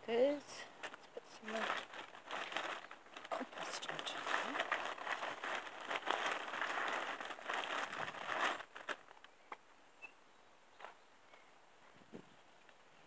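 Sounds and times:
potting compost crinkling rustle: 0:00.0 - 0:09.4.

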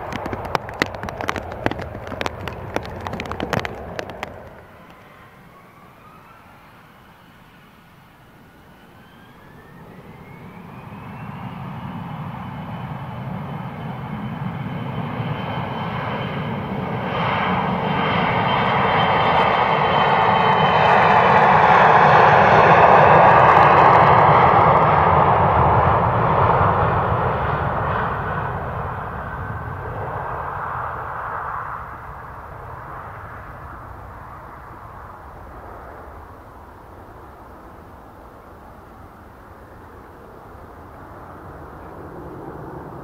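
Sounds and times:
jet engines spooling up: 0:08.4 - 0:14.8.

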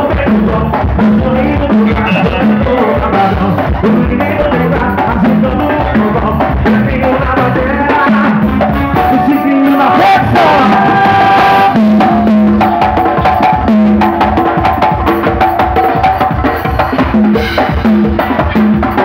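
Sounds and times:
conga drums: 0:00.0 - 0:19.0
electronic keyboard: 0:08.8 - 0:13.6.

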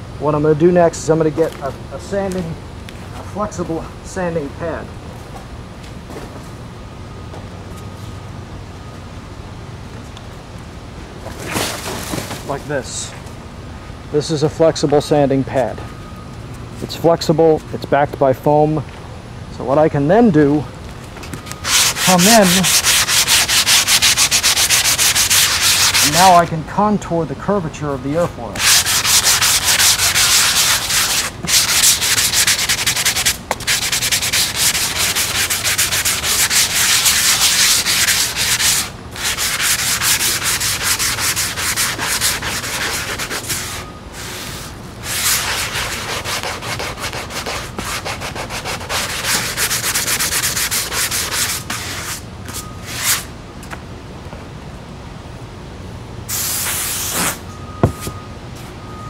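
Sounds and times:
hand sanding strokes: 0:21.6 - 0:26.4, 0:28.6 - 0:53.3.

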